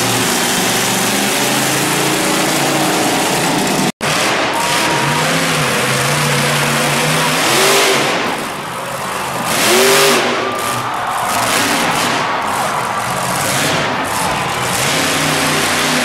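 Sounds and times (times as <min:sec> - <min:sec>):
monster truck engine revving: 0:00.0 - 0:16.0.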